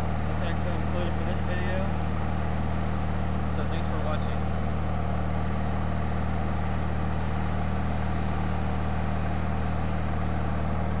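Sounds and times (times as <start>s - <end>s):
lawn tractor engine droning: 0.0s - 6.2s.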